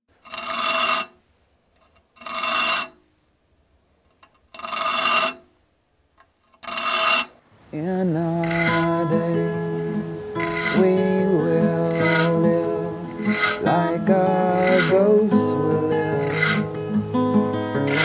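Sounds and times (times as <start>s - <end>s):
saw file rasping on saw teeth: 0.2s - 1.2s, 1.8s - 3.0s, 4.6s - 5.4s, 6.6s - 7.3s, 8.4s - 9.0s, 10.4s - 11.0s, 11.9s - 12.4s, 13.1s - 15.2s, 16.2s - 16.7s, 17.8s - 18.0s
acoustic guitar music: 7.8s - 18.0s.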